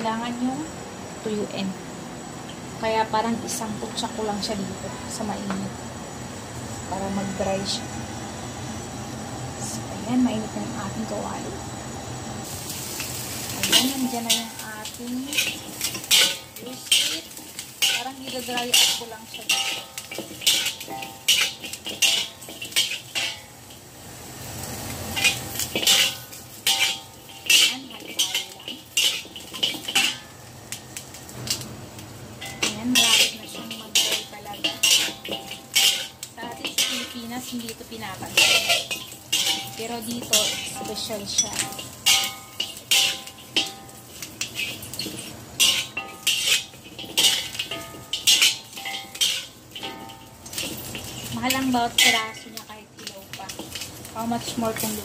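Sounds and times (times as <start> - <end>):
wok ringing: 0.0 - 55.0
metal spatula scraping a wok: 12.5 - 31.6, 32.3 - 55.0.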